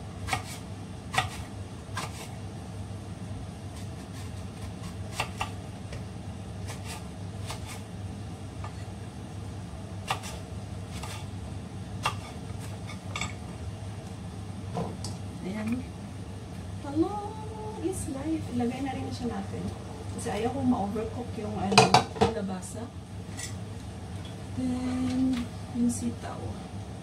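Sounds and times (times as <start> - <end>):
steady low hum: 0.0 - 27.0
knife chopping on cutting board: 0.2 - 2.4, 3.8 - 5.6, 6.6 - 7.8, 10.0 - 11.3, 12.0 - 12.8.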